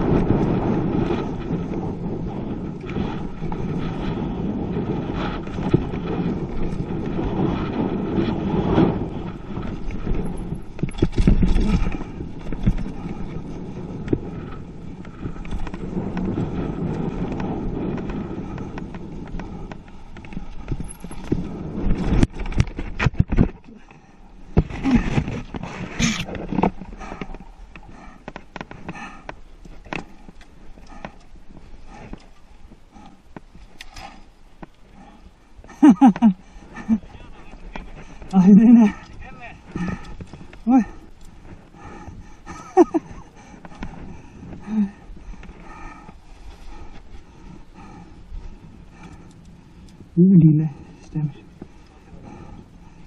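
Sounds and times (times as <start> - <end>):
bike rattling and knocking: 0.0 - 35.0
tyres on dirt: 0.0 - 53.0
wind rushing over microphone: 0.0 - 53.0.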